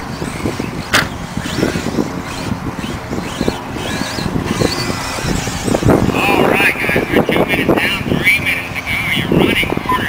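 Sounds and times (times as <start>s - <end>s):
rushing background noise: 0.0s - 10.0s
toy truck motor whine: 0.2s - 6.1s.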